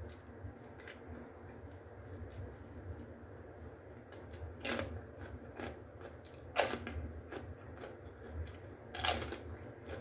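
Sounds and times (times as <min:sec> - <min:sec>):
person chewing food: 0:00.0 - 0:10.0
loud crunches: 0:04.6 - 0:10.0.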